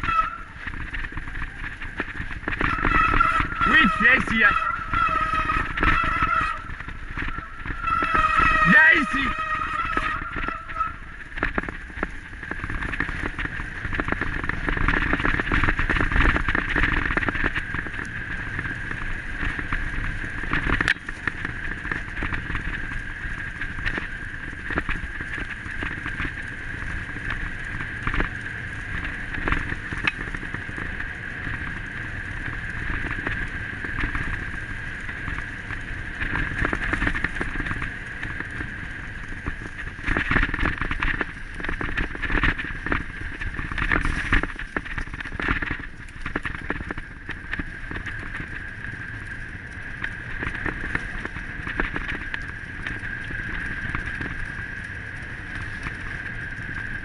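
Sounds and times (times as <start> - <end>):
high hum: 0.0 - 57.0
wind on microphone: 0.0 - 57.0.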